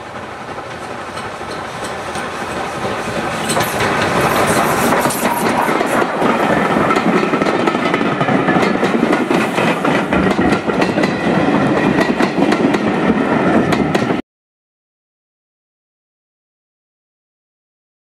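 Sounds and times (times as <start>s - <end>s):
train wheels rumbling on rail: 0.0s - 14.2s
wheels clicking over rail joints: 0.8s - 12.9s.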